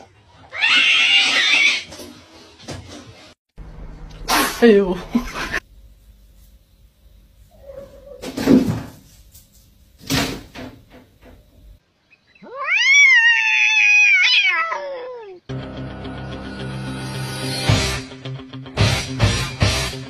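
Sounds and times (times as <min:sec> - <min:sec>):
cat meowing: 0:12.4 - 0:15.4.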